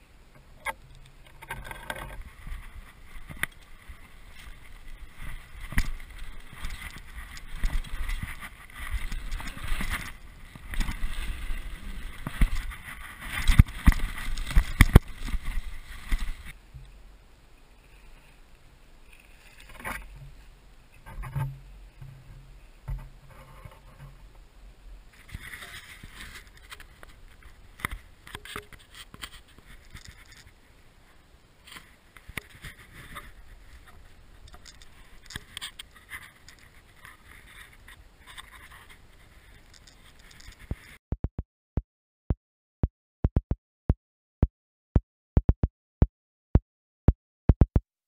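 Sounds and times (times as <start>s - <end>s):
bike tyres rolling on dirt: 0.4s - 17.1s, 25.0s - 41.0s
bike rattling over bumps: 0.7s - 16.6s.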